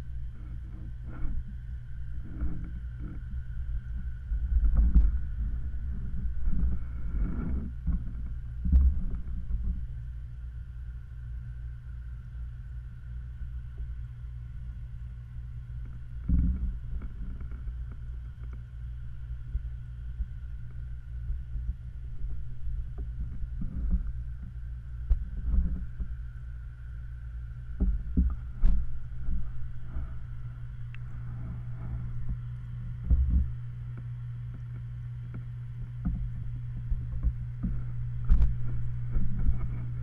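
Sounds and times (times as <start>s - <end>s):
faint steady hum: 0.0s - 40.0s
muffled underwater rumble: 0.0s - 40.0s.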